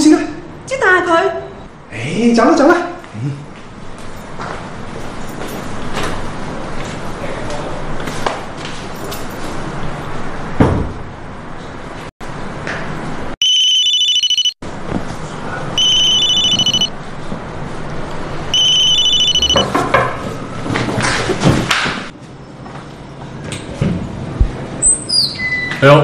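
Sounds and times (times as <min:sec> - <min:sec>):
electronic doorbell trill: 0:13.4 - 0:14.6, 0:15.8 - 0:16.9, 0:18.5 - 0:19.7.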